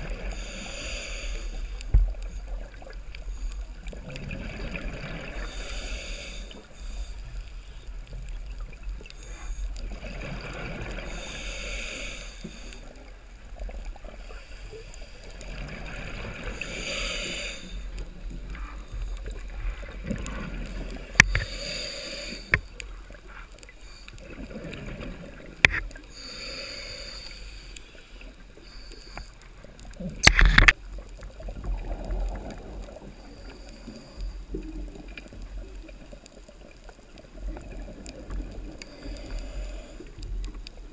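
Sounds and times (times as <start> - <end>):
underwater rush of water: 0.0 - 40.9
sharp clicks and knocks: 30.2 - 30.8.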